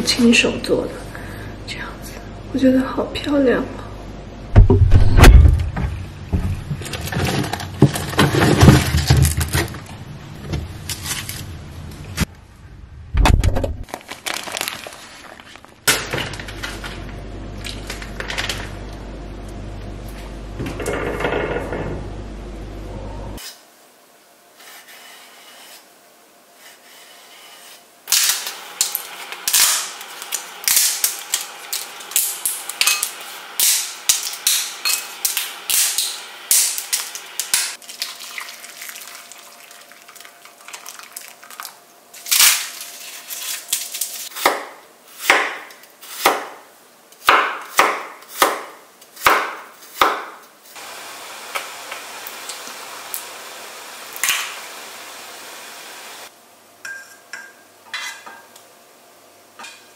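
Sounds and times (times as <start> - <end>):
water boiling in a saucepan: 37.1 - 41.9
knife chopping on wooden board: 44.4 - 46.6, 47.2 - 50.3.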